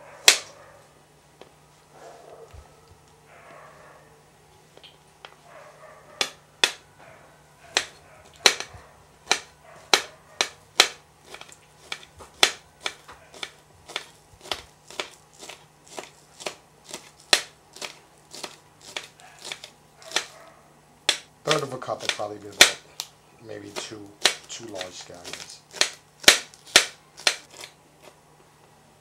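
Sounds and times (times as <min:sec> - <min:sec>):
knife chopping on cutting board: 0:06.1 - 0:06.8, 0:07.7 - 0:20.4, 0:21.1 - 0:22.8, 0:23.6 - 0:27.7.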